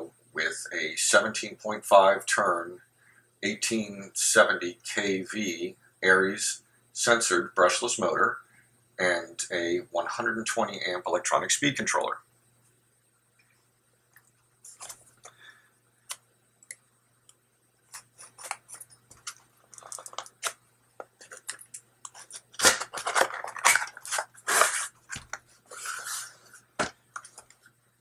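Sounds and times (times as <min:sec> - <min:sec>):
cardboard scraping and rustling: 0:22.1 - 0:26.9
knife slitting cardboard: 0:22.6 - 0:25.0.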